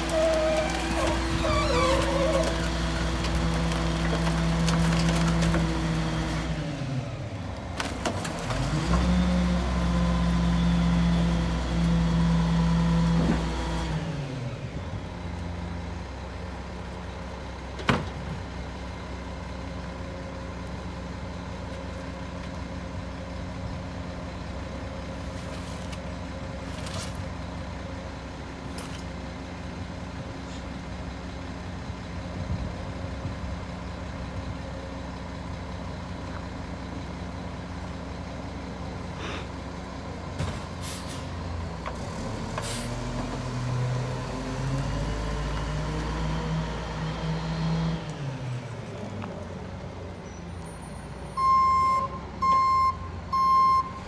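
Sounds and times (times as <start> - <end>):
diesel truck engine revving: 0.0 - 7.4, 8.4 - 14.8, 40.8 - 49.1.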